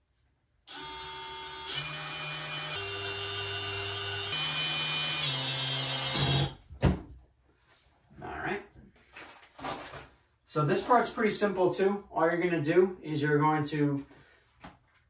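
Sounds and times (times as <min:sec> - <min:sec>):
cordless drill whirring: 0:00.7 - 0:06.6.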